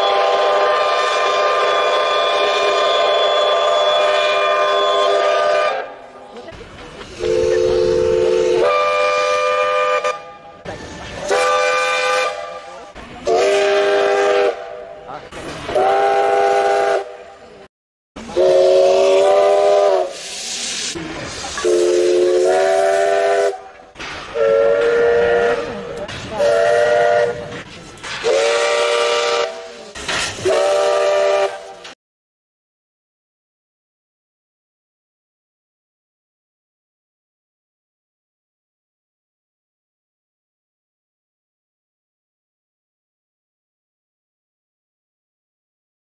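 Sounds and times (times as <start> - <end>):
steam locomotive whistle blasts: 0.0 - 6.0, 7.2 - 10.6, 11.3 - 14.7, 15.7 - 17.2, 18.3 - 20.8, 21.6 - 23.7, 24.3 - 25.8, 26.4 - 27.5, 28.2 - 31.9
steam hissing: 18.2 - 31.9.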